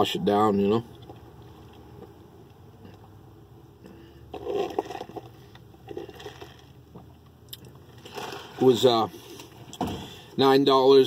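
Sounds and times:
slurping through a straw: 4.3s - 6.8s.

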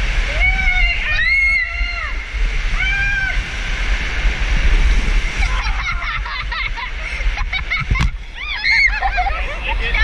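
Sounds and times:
water rushing down waterslide tube: 0.0s - 10.0s
riders laughing and squealing: 5.2s - 10.0s.

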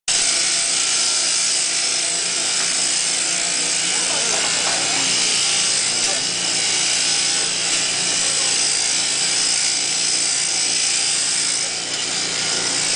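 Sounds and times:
shearing handpiece buzzing: 0.1s - 12.9s.

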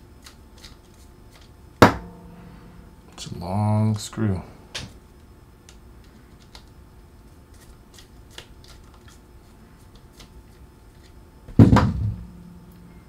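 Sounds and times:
loud knock: 1.8s - 2.5s, 11.6s - 12.4s.

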